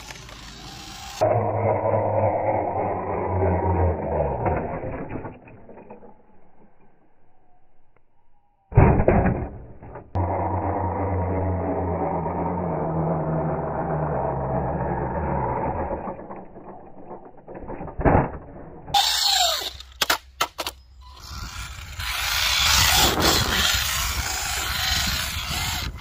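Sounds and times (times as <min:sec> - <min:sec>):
electric motor hum: 0:00.0 - 0:05.0, 0:10.2 - 0:16.8, 0:21.0 - 0:26.0.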